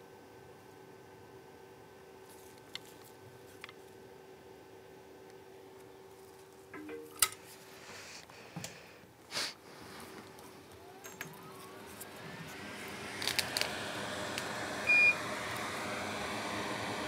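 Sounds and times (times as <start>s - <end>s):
rising whine: 10.2s - 17.0s.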